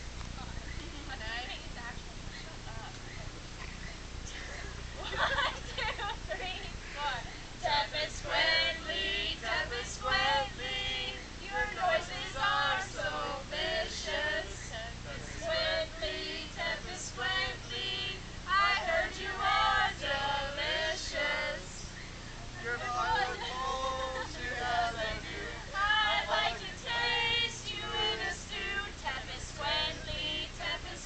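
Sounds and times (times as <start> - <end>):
group singing a carol: 7.6 - 31.0.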